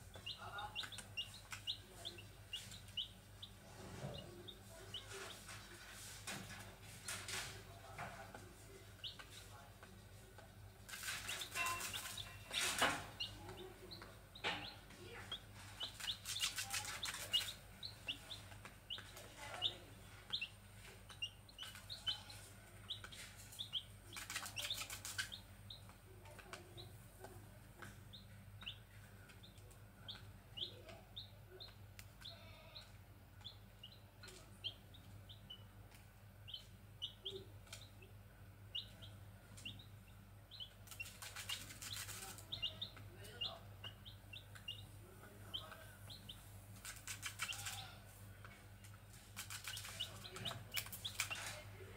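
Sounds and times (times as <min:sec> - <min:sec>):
chicks peeping: 0:00.0 - 0:51.9
rustling and wing fluttering: 0:10.9 - 0:13.1, 0:15.6 - 0:17.6, 0:23.2 - 0:25.3, 0:40.8 - 0:42.5, 0:46.7 - 0:47.8, 0:49.1 - 0:51.6.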